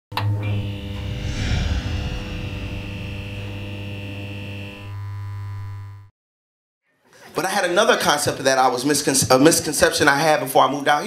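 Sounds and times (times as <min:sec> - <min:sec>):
low electric hum: 0:00.7 - 0:04.7
whoosh: 0:00.8 - 0:04.5.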